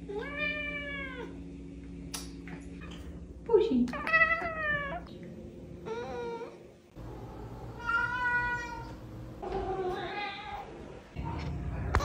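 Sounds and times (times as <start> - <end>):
cat meowing: 7.7 - 10.7.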